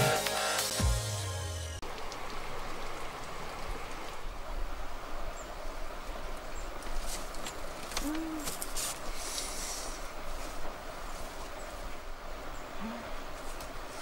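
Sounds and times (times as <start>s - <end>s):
outdoor ambience hiss: 0.0s - 14.0s
bamboo platform rustling and creaking: 6.7s - 12.0s, 12.8s - 14.0s.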